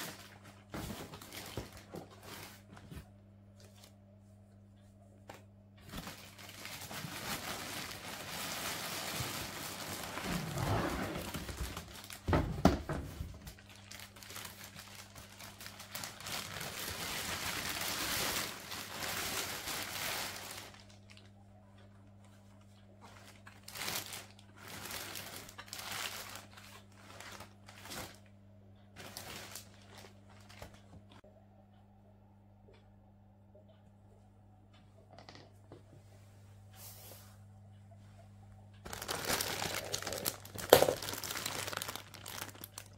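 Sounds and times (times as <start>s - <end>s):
plastic bag crinkling: 0.0s - 2.8s, 5.8s - 12.4s, 13.2s - 21.3s, 23.2s - 28.3s, 29.0s - 30.9s, 38.8s - 42.9s.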